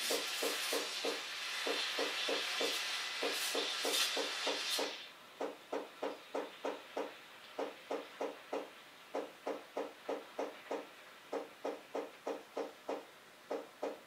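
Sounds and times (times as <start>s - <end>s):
steam wand hissing: 0.0s - 5.1s.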